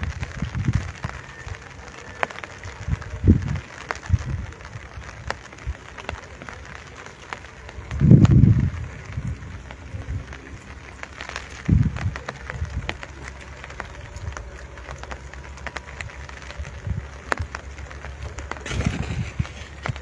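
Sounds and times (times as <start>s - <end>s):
low microphone rumbles: 0.0s - 1.9s, 2.5s - 20.0s
rain hiss: 0.0s - 20.0s
raindrops ticking: 0.0s - 20.0s.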